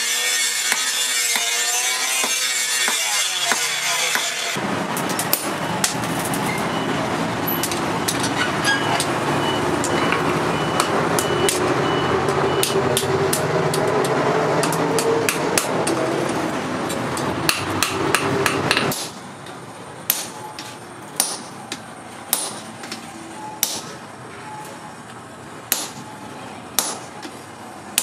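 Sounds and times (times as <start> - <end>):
hammer striking anvil: 20.1 - 21.6, 22.3 - 22.7, 26.8 - 27.3.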